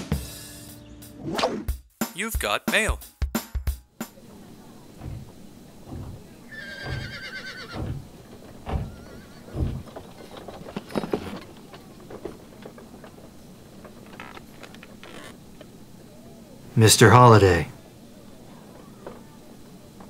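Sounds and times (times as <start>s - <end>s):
heavy low thuds: 4.9s - 6.4s, 7.8s - 10.0s
horse whinny: 6.5s - 8.0s, 8.7s - 9.8s.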